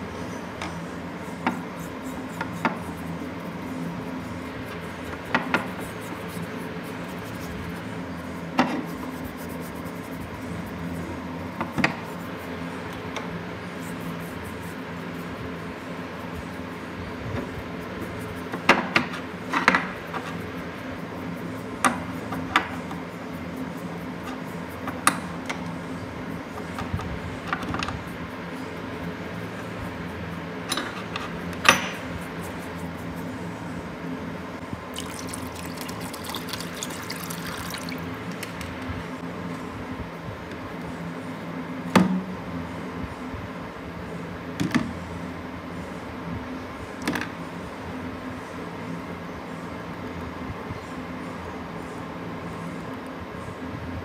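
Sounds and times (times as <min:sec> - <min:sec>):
steady low hum: 0:00.0 - 0:54.0
brush scrubbing metal: 0:00.8 - 0:34.4.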